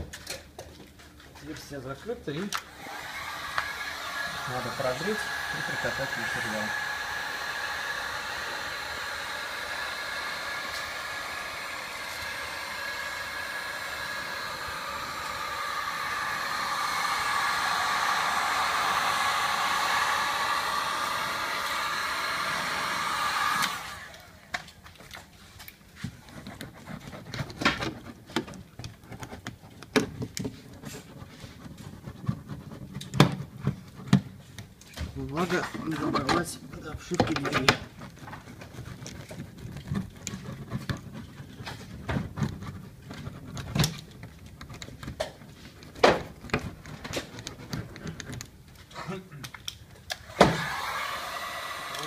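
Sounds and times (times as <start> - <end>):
heat gun blowing: 2.6 - 24.8, 50.0 - 52.0.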